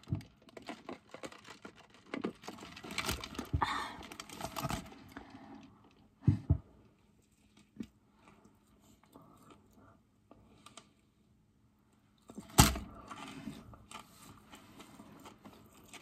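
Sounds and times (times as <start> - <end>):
paper wrappers rustling: 0.0 - 5.2, 12.6 - 16.0.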